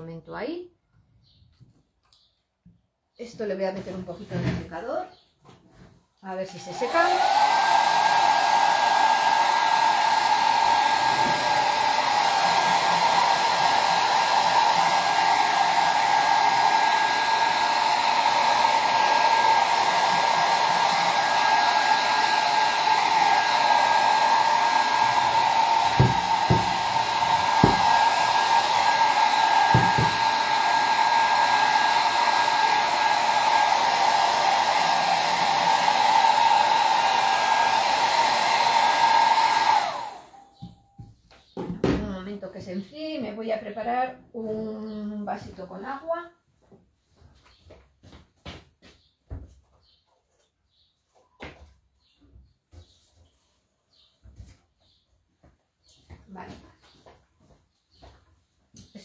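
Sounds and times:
hair dryer running: 6.4 - 40.8.

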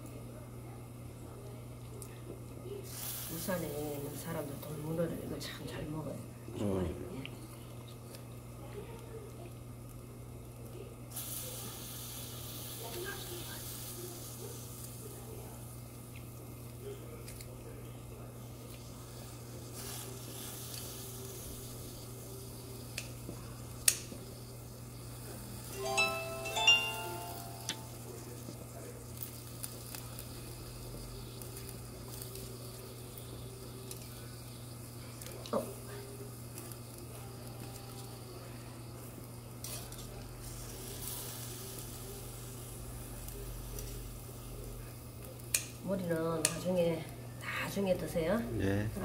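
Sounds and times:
broth simmering: 27.5 - 39.6.

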